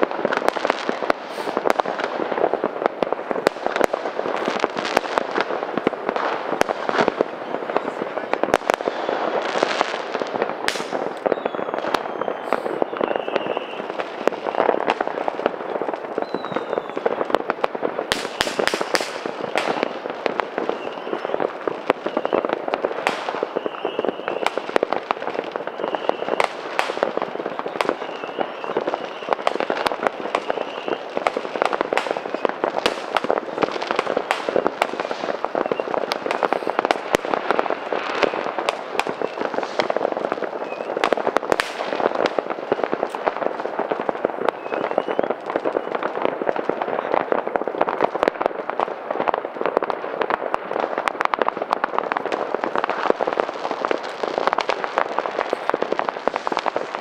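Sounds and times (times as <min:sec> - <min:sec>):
high firework whistles: 0:00.0 - 0:02.6, 0:06.1 - 0:15.3, 0:16.1 - 0:17.3, 0:18.1 - 0:46.1
fireworks and firecrackers banging: 0:00.0 - 0:57.0.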